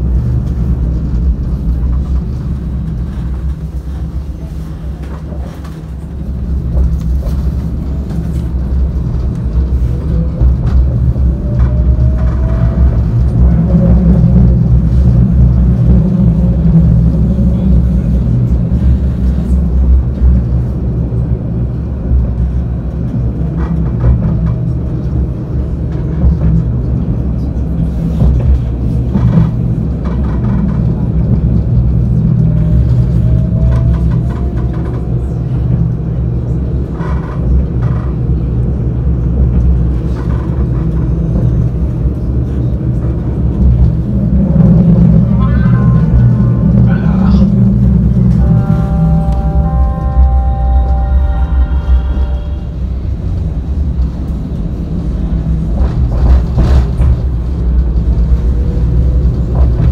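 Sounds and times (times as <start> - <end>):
tram rumbling on track: 0.0 - 59.9
traction motor whine: 44.0 - 54.2.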